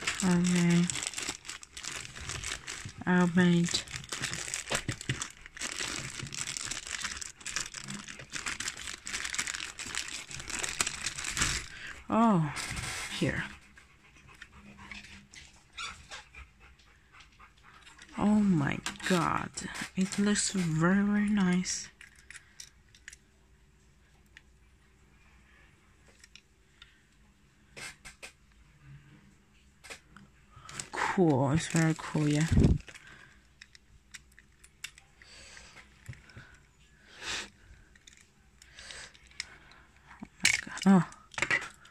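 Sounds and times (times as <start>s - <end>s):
plastic bag crinkling: 0.0s - 12.0s, 18.8s - 22.3s, 30.6s - 35.1s, 40.2s - 41.9s.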